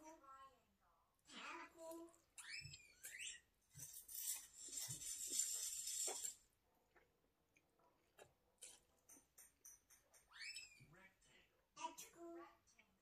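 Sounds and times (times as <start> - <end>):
soft chewing with mouth clicks: 6.0 - 10.2.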